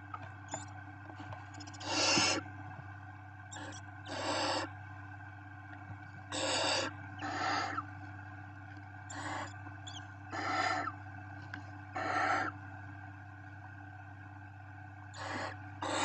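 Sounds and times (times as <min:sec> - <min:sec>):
owl chicks hissing begging calls: 0:01.7 - 0:02.4, 0:03.5 - 0:04.7, 0:06.3 - 0:07.9, 0:09.1 - 0:11.0, 0:12.0 - 0:12.6, 0:15.2 - 0:16.0.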